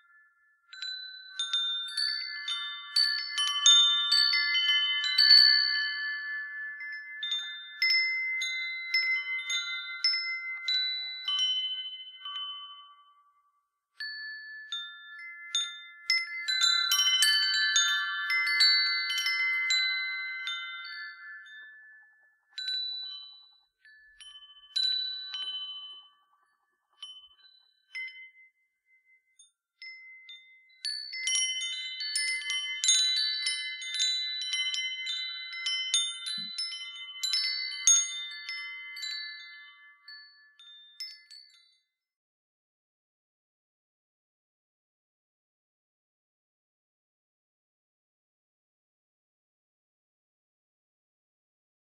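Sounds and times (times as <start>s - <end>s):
wind chime ringing: 0.0s - 41.9s.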